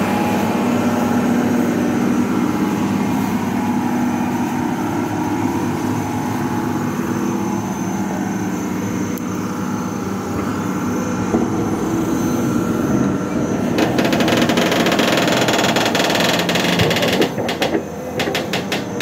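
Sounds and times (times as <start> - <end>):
excavator diesel engine running: 0.0 - 19.0
rapid clattering: 13.8 - 19.0.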